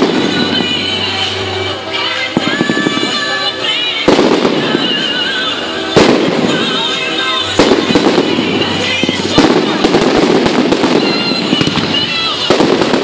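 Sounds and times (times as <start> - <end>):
fireworks bangs: 0.0 - 13.0
fireworks crackling: 0.0 - 13.0.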